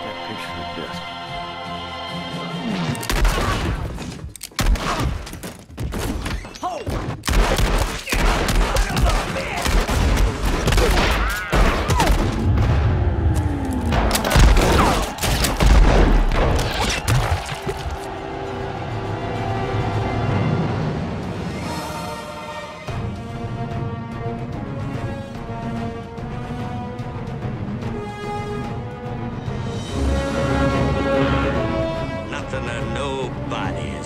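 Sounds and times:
film music: 0.0s - 6.1s, 7.2s - 34.0s
gunshots: 4.6s - 12.7s, 13.9s - 17.7s.

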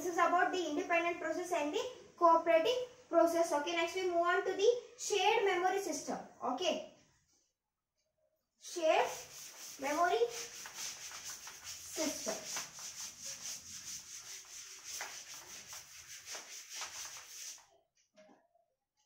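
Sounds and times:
duster scraping a chalkboard: 8.7s - 17.6s.

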